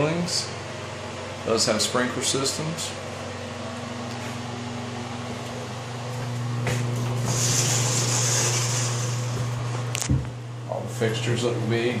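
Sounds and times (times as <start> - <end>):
ventilation hum: 0.0 - 12.0
hiss: 7.2 - 9.4.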